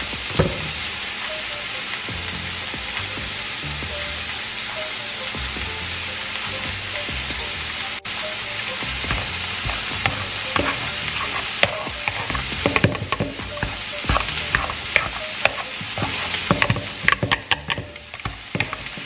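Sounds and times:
utensils knocking and scraping bowl: 8.9s - 19.0s
potatoes squishing: 9.0s - 19.0s.

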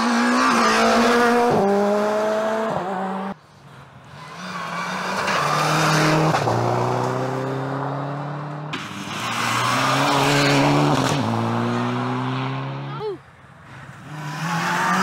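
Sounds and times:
rally car passing by: 4.0s - 13.0s, 13.6s - 15.0s
rally car engine upshifting: 4.1s - 12.9s, 13.7s - 15.0s.

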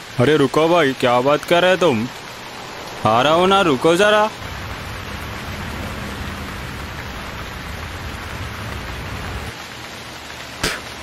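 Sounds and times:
rain falling: 0.0s - 11.0s
low hum: 2.3s - 9.5s.

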